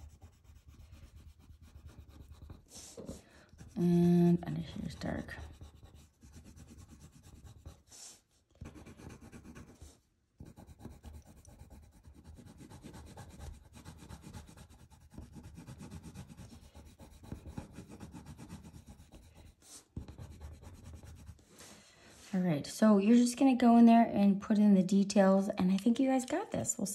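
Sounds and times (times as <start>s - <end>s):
pencil shading on paper: 0.0s - 8.0s, 8.6s - 21.5s.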